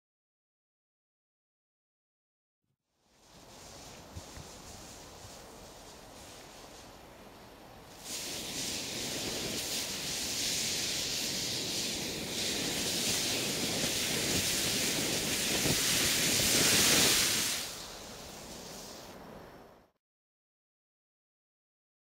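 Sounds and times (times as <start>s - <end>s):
firework flare hissing: 7.8s - 19.2s.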